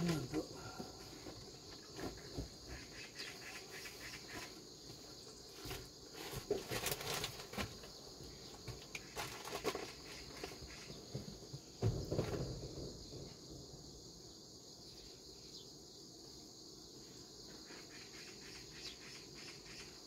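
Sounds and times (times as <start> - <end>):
insects chirring: 0.0 - 20.0
light rustles and knocks: 0.1 - 3.1, 4.1 - 13.4.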